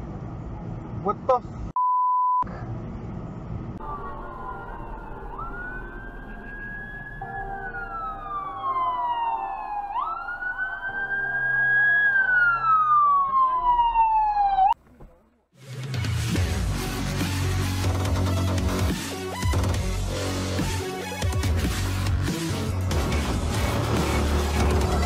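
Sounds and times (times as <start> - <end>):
fire engine siren wailing: 3.8 - 14.8.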